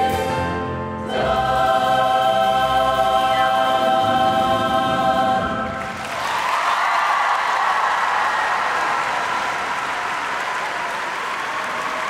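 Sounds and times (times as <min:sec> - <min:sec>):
choir holding a chord: 0:00.0 - 0:06.1.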